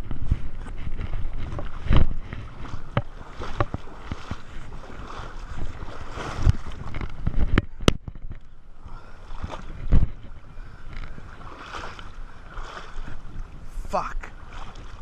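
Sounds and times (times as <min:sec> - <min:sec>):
person wading through water: 0:00.0 - 0:15.0.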